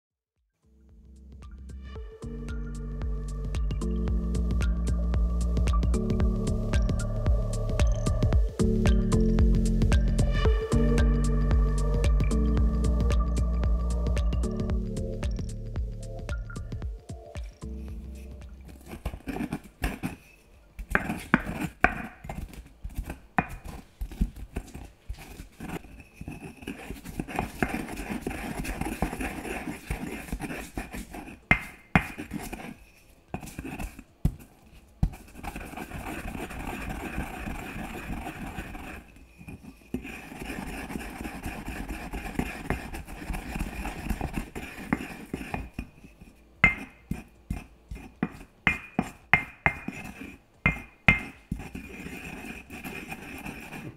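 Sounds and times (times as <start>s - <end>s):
pestle tapping in mortar: 20.9s - 22.4s, 31.5s - 32.3s, 46.6s - 50.1s, 50.7s - 51.7s
pestle grinding in mortar: 25.5s - 32.8s, 35.0s - 46.0s, 46.6s - 53.9s.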